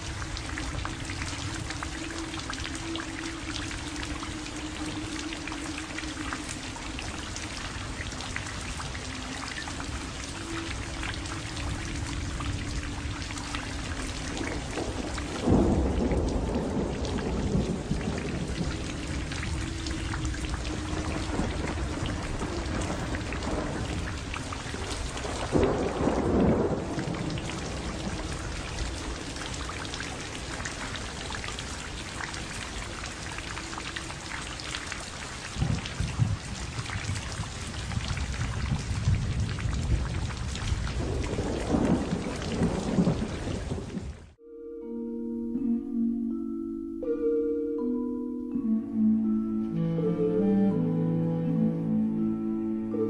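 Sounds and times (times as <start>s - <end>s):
steady rain: 0.0s - 44.4s
thunder rolling: 9.8s - 33.3s, 35.4s - 44.4s.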